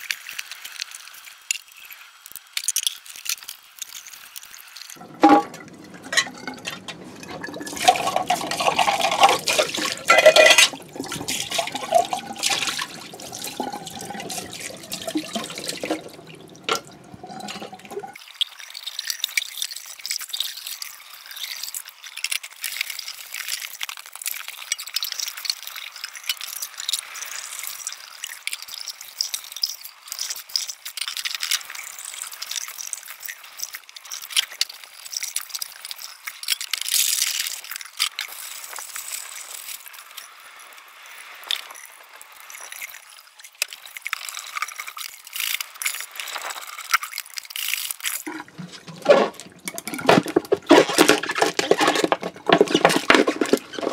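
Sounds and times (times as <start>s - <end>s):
cans clinking and rattling: 5.0s - 18.2s, 48.2s - 53.9s
tap water splashing: 5.0s - 18.2s, 48.3s - 53.9s.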